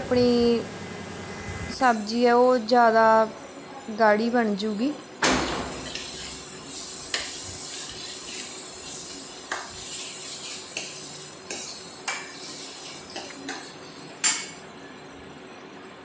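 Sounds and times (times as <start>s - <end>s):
paste frying: 5.4s - 14.6s.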